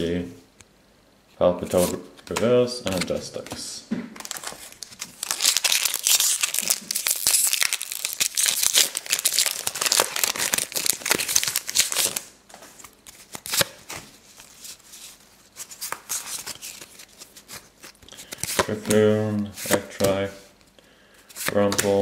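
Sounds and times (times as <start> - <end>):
cards rustling: 1.6 - 20.4, 21.2 - 22.0
foil wrapper tearing and crinkling: 4.2 - 12.3.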